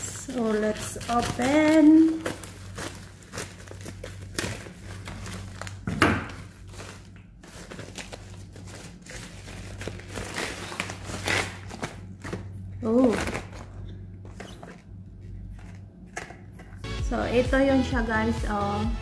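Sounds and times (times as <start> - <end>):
scissors cutting plastic: 0.0 - 13.7
plastic bag crinkling: 0.0 - 15.9.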